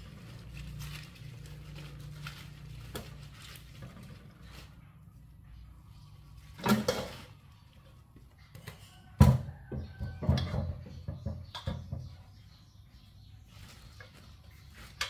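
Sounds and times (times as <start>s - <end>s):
flowers rustling: 0.0s - 5.3s, 13.4s - 15.0s.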